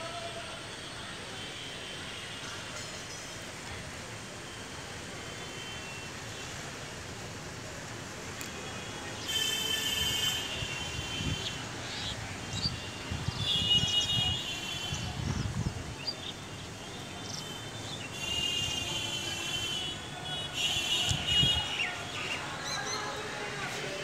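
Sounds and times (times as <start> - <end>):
vehicle horns: 8.4 - 11.6, 12.7 - 15.4, 16.7 - 22.1.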